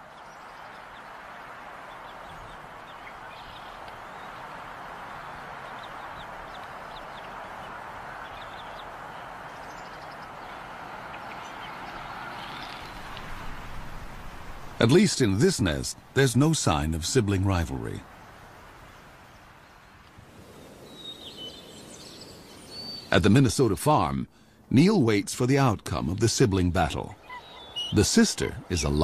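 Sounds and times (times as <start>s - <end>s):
steady rushing noise: 1.0s - 21.1s
eaglets peeping: 5.2s - 14.7s, 26.8s - 29.0s.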